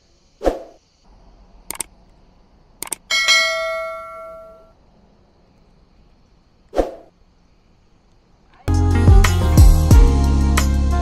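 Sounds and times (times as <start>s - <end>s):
quick clicks: 1.7s - 2.2s, 2.8s - 3.1s
notification bell ding: 3.1s - 4.7s.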